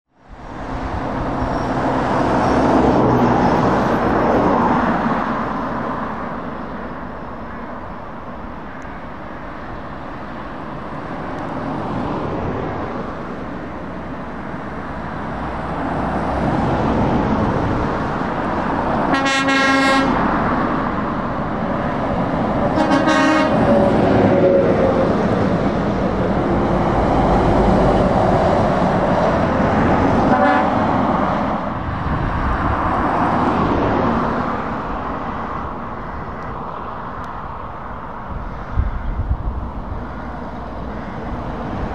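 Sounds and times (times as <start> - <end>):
traffic driving past: 0.1 - 41.9
vehicle horn blasts: 19.1 - 20.2, 22.8 - 23.7, 30.3 - 30.8.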